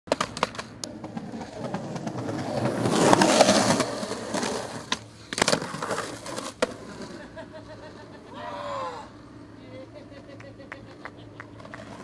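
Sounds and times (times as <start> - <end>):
skateboard clacking on concrete: 0.1 - 7.0, 10.4 - 12.0
skateboard wheels rolling on concrete: 0.1 - 12.0.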